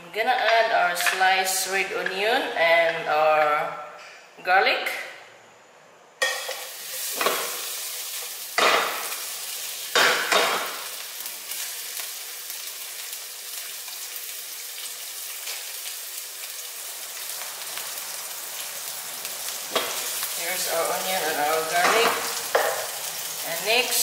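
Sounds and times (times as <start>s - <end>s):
onion and garlic sizzling in oil: 6.2s - 24.0s.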